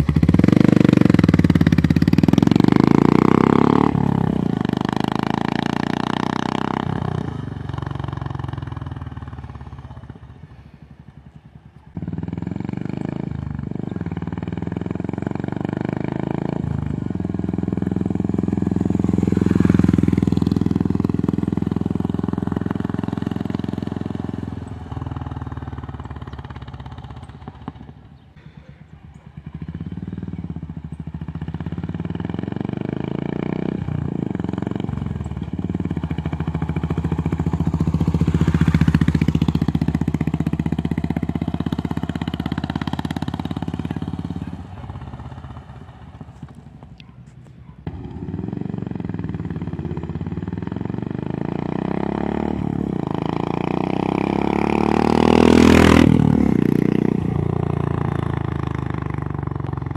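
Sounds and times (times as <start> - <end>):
motorcycle passing at low revs: 0.0 - 59.9.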